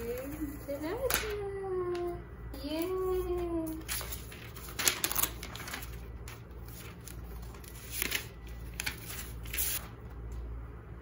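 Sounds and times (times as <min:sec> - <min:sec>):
paper and cardboard rustling: 0:02.7 - 0:10.0.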